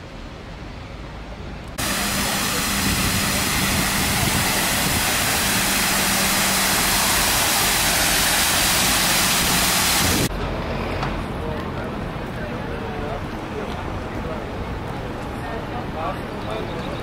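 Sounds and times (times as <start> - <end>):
fountain water splashing: 1.8 - 10.3.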